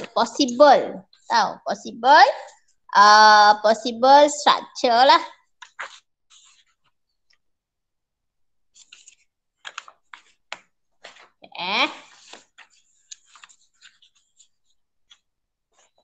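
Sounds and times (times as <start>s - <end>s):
papers and objects handled: 5.4s - 7.5s, 8.7s - 16.0s.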